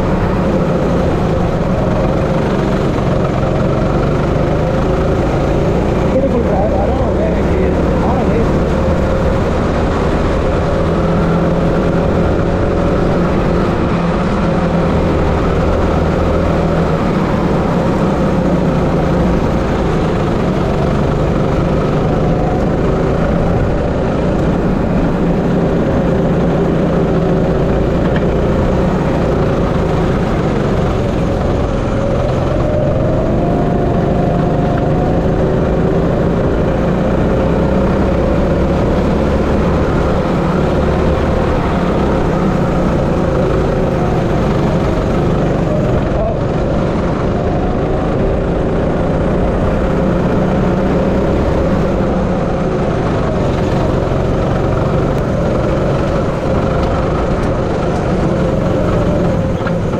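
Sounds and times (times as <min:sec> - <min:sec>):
go-kart engine running: 0:00.0 - 0:59.9.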